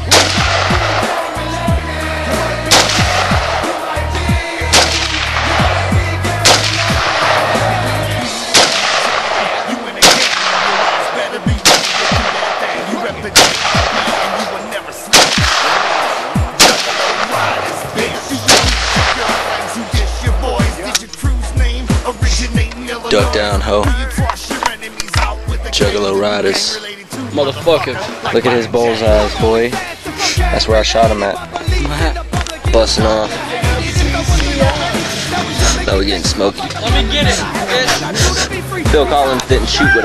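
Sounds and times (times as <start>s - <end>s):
rifle shots: 0.0s - 1.3s, 2.7s - 3.8s, 4.6s - 7.8s, 8.4s - 21.1s.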